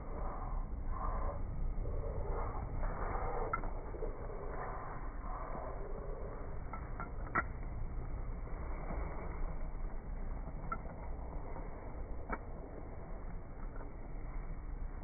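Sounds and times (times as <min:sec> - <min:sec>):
low muffled rumble: 0:00.0 - 0:15.0.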